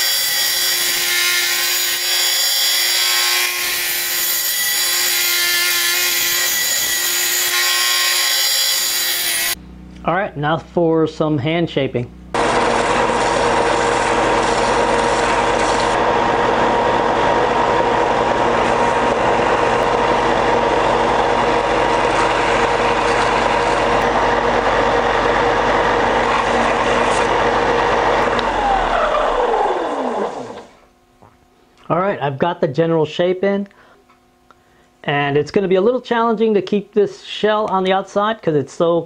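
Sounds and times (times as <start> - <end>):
belt sander motor hum: 12.4 - 30.8.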